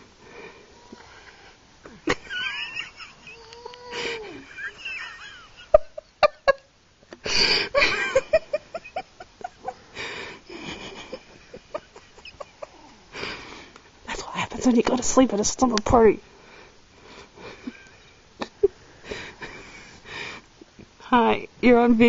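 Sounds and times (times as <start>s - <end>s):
stifled breathy giggling: 1.8s - 6.6s, 7.2s - 13.5s, 17.4s - 20.4s.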